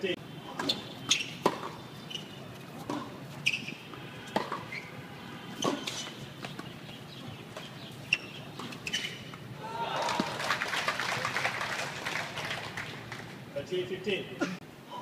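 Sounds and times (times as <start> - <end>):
tennis ball hit by racket: 0.5 - 1.8, 2.8 - 3.2, 4.3 - 4.7, 5.5 - 6.7
tennis shoes squeaking on court: 0.5 - 9.5.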